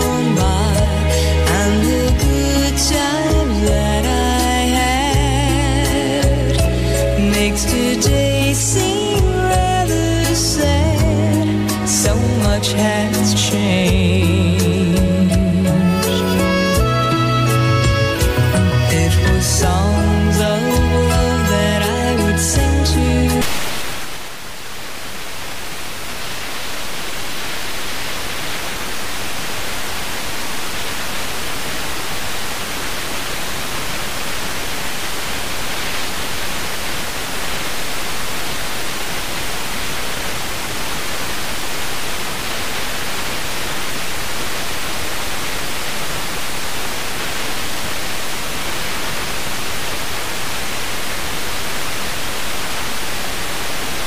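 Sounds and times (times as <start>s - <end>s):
radio static hiss: 23.2s - 54.0s.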